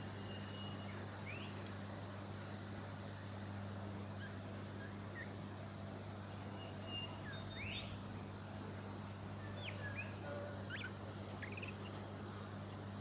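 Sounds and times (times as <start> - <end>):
faint bird chirps and whistles: 0.0 - 1.6, 6.1 - 8.0, 9.4 - 12.0.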